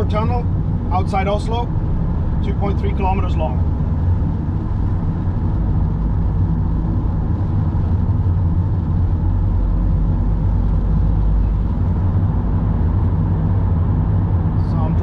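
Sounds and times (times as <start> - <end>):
car engine and tyre rumble: 0.0 - 15.0.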